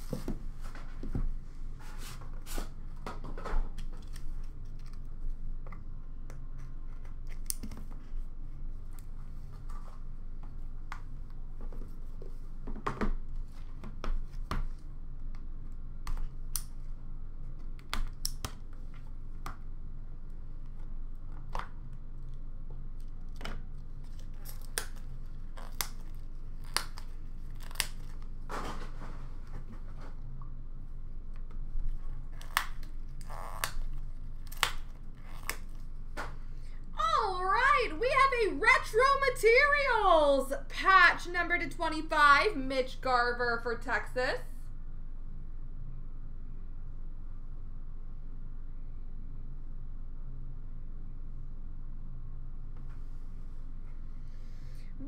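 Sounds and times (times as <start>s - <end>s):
steady low hum: 0.0s - 55.0s
wrap tearing and crinkling: 24.2s - 28.3s.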